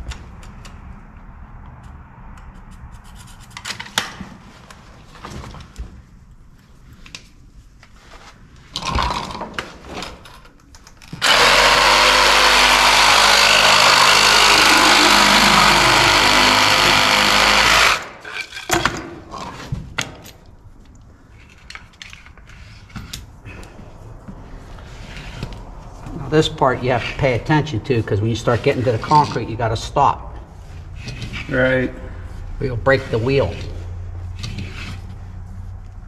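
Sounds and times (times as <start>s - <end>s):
power drill cutting pipe: 11.2s - 18.2s.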